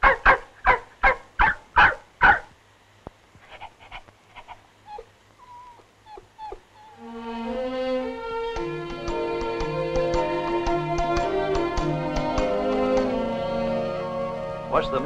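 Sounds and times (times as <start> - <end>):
dog barking: 0.0 - 2.5
dog whimpering and whining: 4.9 - 7.0
background music: 7.0 - 15.0.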